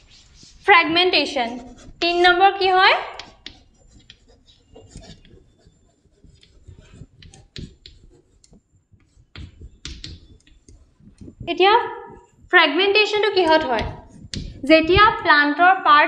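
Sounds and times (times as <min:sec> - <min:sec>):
pen scratching on paper: 0:00.0 - 0:12.4, 0:13.1 - 0:15.3
pen tapping: 0:03.2 - 0:11.5, 0:13.5 - 0:15.2.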